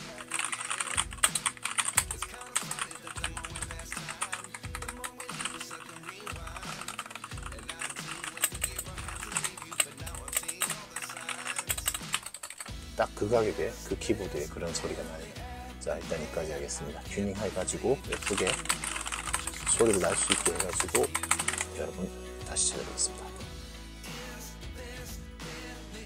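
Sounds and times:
fast typing on mechanical keyboard: 0.0s - 12.7s, 18.1s - 21.8s.

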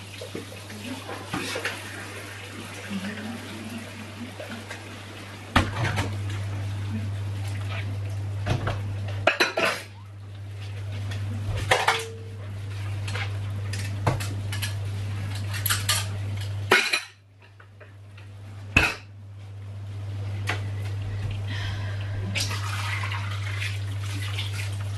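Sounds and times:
dishes clattering in a metal sink: 0.2s - 2.0s, 5.5s - 6.4s, 8.4s - 10.0s, 11.1s - 19.2s.

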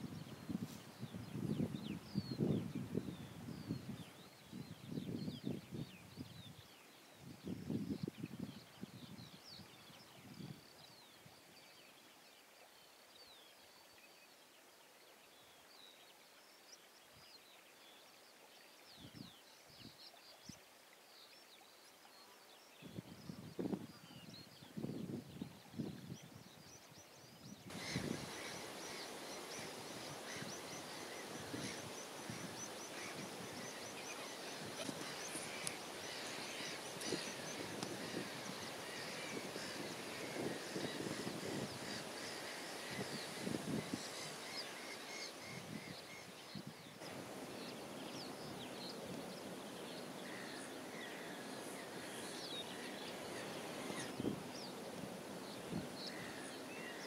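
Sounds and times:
outdoor background hiss: 0.0s - 57.0s
birds calling: 27.7s - 57.0s.

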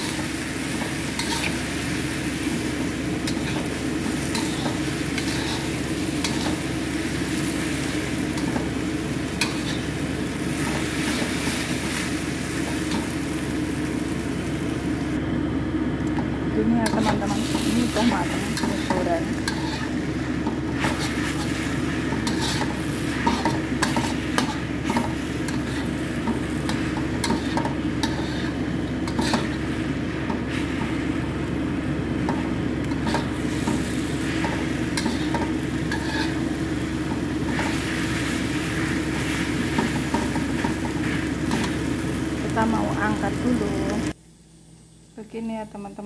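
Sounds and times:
metal spatula scraping a wok: 0.0s - 1.8s, 3.2s - 8.6s, 9.3s - 12.0s, 16.8s - 29.7s, 32.3s - 41.8s
noodles sizzling: 0.0s - 44.2s.

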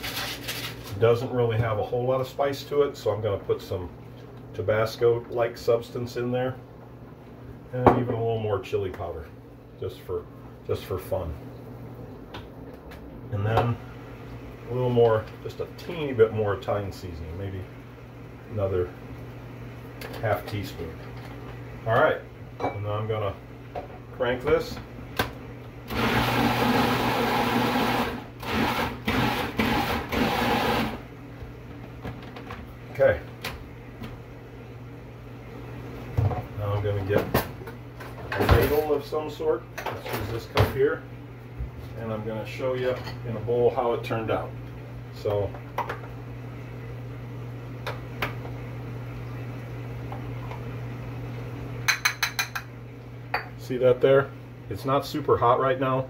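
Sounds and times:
steady low hum: 0.0s - 56.0s
food processor pureeing: 25.9s - 31.1s.

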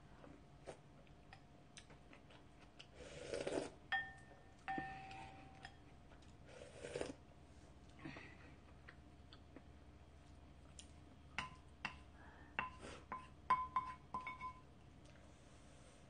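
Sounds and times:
person slurping broth: 3.0s - 3.8s, 6.5s - 7.2s
wooden spoon knocking ceramic bowl: 3.9s - 5.8s, 12.6s - 14.6s.

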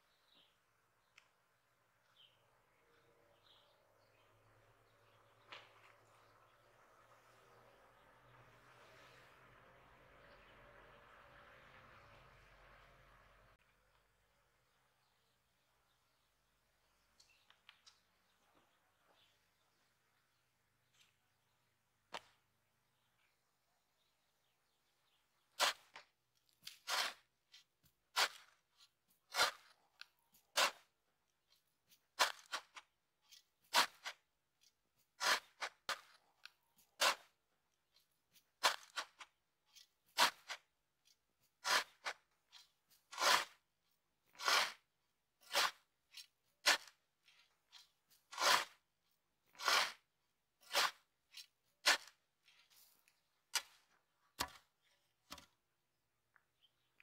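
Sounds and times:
shovel digging into gravel: 25.5s - 26.0s, 26.6s - 34.3s, 35.0s - 37.4s, 38.3s - 40.7s, 41.4s - 54.7s.

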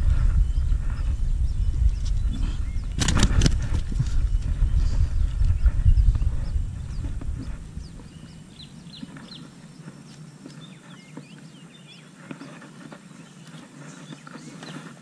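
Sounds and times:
low microphone rumble: 0.0s - 9.8s
birds chirping: 0.0s - 15.0s
clicks and rustling handling fish: 12.1s - 15.0s.

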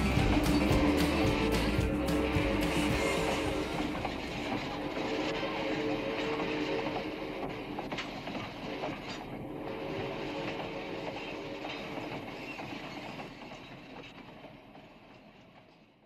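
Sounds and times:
steady whine: 0.0s - 12.0s
train wheels clicking over rail joints: 0.0s - 16.0s.

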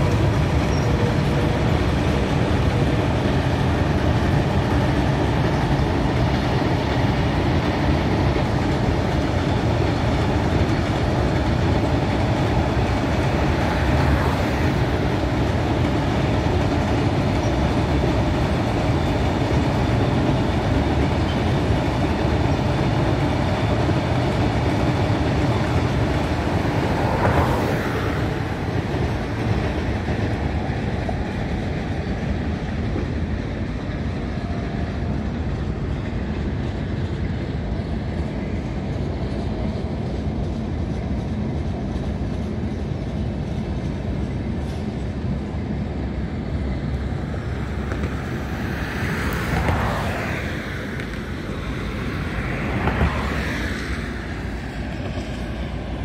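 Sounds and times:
train rumbling over steel bridge: 0.0s - 56.0s.

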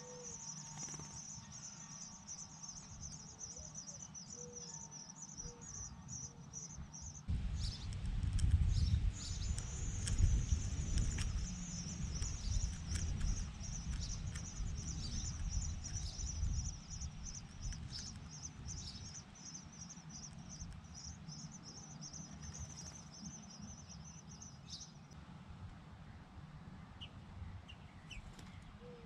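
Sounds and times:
nestling birds begging calls: 0.0s - 23.9s
low rumble: 7.3s - 17.9s.

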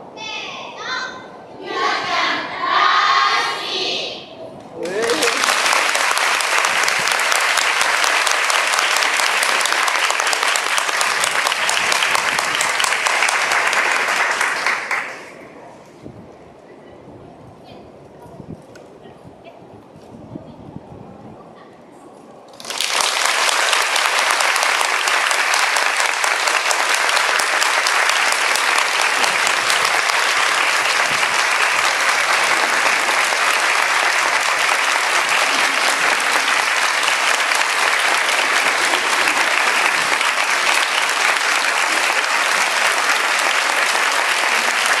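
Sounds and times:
crowd applauding: 4.8s - 15.4s, 22.5s - 45.0s.

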